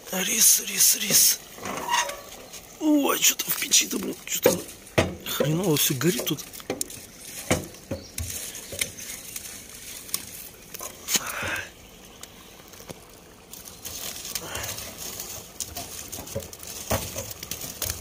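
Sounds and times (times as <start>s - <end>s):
firewood knocking in metal stove: 4.3s - 9.0s, 15.3s - 18.0s.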